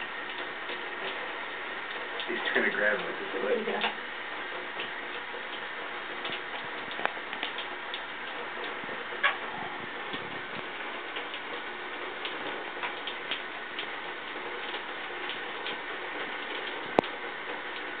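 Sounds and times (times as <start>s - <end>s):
light ticks: 6.2s - 8.8s, 16.4s - 17.2s.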